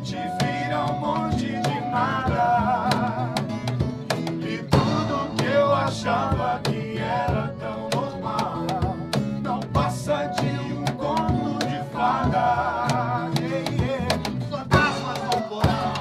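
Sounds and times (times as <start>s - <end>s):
man singing: 0.0s - 3.6s, 4.4s - 16.0s
strummed acoustic guitar: 0.0s - 16.0s
sharp percussive hits: 3.5s - 5.8s.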